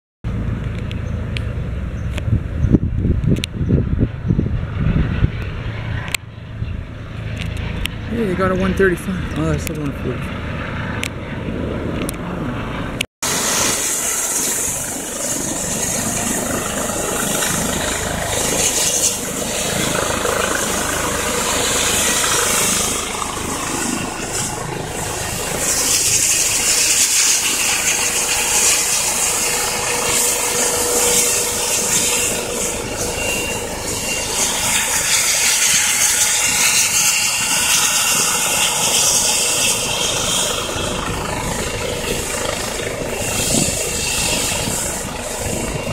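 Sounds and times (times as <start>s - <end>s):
helicopter rotor noise: 0.3s - 45.9s
helicopter turbine whine: 0.3s - 45.9s.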